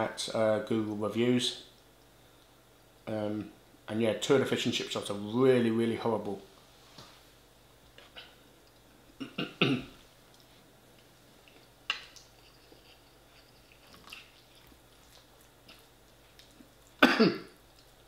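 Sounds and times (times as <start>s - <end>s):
man clearing throat: 9.2s - 10.0s, 17.0s - 17.6s.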